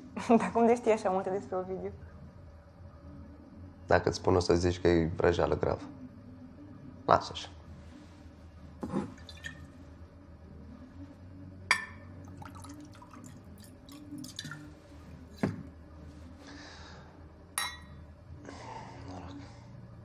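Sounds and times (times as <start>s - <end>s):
glass clinks: 11.7s - 12.1s, 17.6s - 18.0s
drink trickling into glass: 12.2s - 14.8s.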